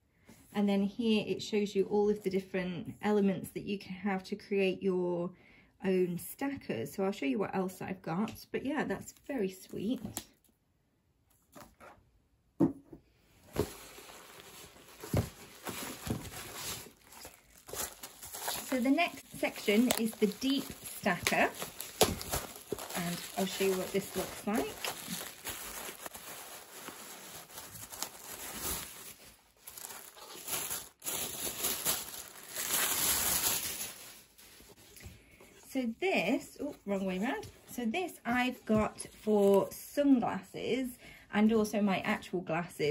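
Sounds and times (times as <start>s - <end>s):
bubble wrap and cardboard rustling: 13.3s - 35.6s
hands rummaging in cardboard box: 13.4s - 34.9s.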